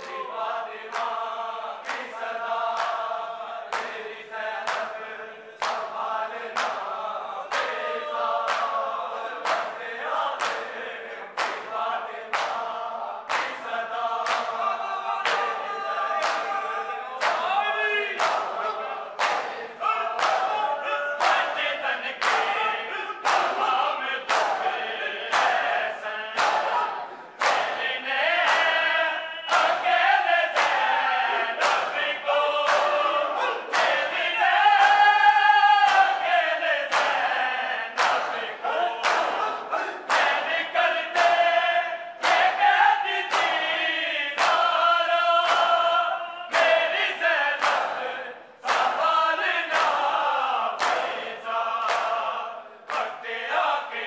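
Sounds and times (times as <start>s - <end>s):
men chanting in unison: 0.0s - 54.0s
hands beating chests: 26.4s - 35.2s.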